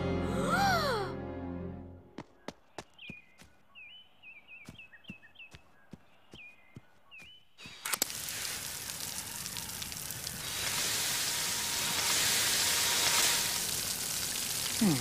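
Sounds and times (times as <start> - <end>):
sprinkler clicks: 7.6 - 15.0
sprinklers spraying hiss: 7.6 - 15.0.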